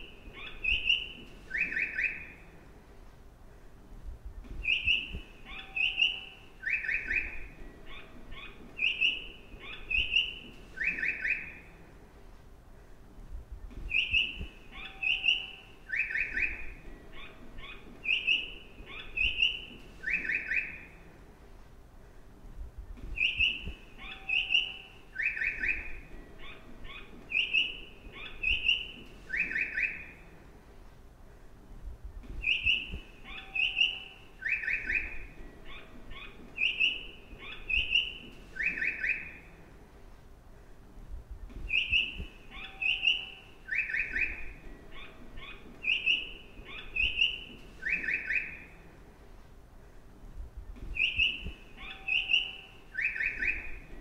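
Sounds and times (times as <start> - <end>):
faint low rumble: 0.0 - 10.8, 11.4 - 20.1, 20.7 - 29.4, 30.0 - 38.6, 39.3 - 47.9, 48.6 - 52.1
recorded birdsong chirps: 0.0 - 54.0.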